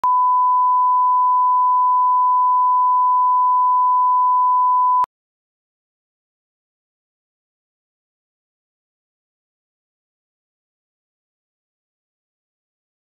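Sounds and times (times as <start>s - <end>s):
steady pure test tone beep: 0.0s - 5.1s.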